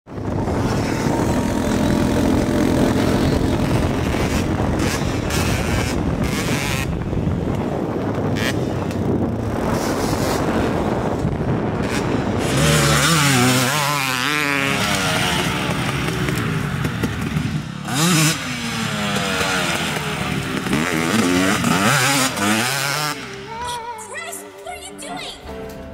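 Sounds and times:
dirt bike engines revving: 0:00.1 - 0:23.8
close dirt bike throttle wavering: 0:00.2 - 0:23.7.

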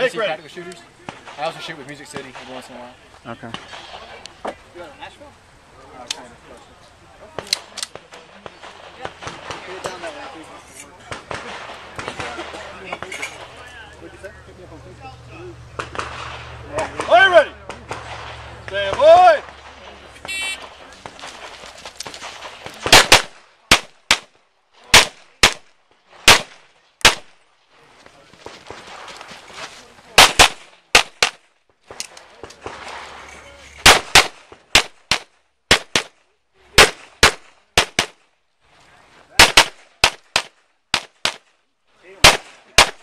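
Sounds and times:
pistol shots: 0:15.7 - 0:24.3, 0:24.9 - 0:27.4, 0:30.2 - 0:33.2, 0:33.8 - 0:36.2, 0:36.8 - 0:38.2, 0:39.4 - 0:41.4, 0:42.2 - 0:43.0.

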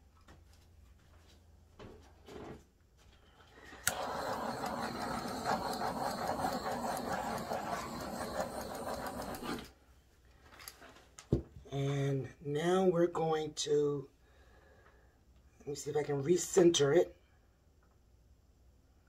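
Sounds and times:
torch flame hissing: 0:03.7 - 0:09.7
torch lighter click: 0:03.8 - 0:09.6.

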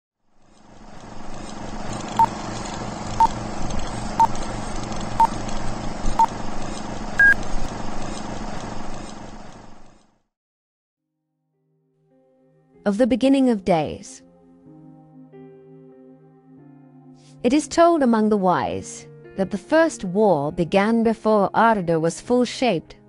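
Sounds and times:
electronic beeps: 0:02.2 - 0:02.4, 0:03.2 - 0:03.4, 0:04.2 - 0:04.4, 0:05.2 - 0:05.4, 0:07.2 - 0:07.5.

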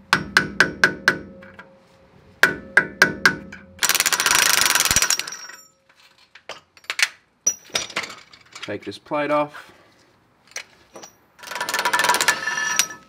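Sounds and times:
hammer striking metal: 0:00.1 - 0:01.8, 0:02.4 - 0:03.8.

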